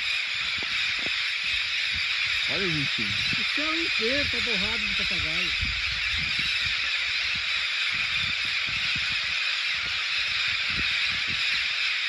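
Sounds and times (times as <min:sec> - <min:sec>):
flock of parrots calling: 0:00.0 - 0:12.0.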